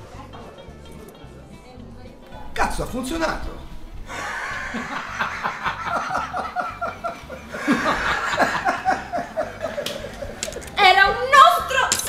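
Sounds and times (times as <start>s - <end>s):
men laughing hard: 4.1s - 10.8s.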